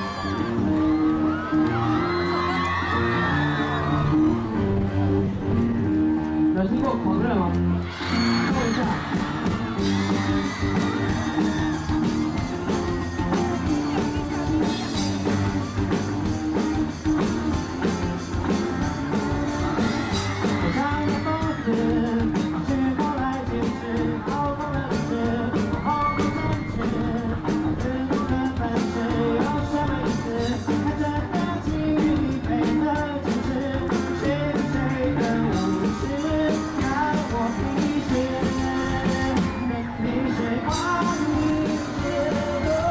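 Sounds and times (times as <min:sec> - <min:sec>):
pop-rock band playing: 0:00.0 - 0:42.9
man singing: 0:18.5 - 0:42.9.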